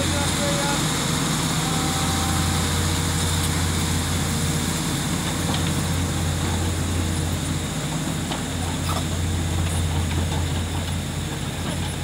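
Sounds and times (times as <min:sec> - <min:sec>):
excavator diesel engine droning: 0:00.0 - 0:12.0.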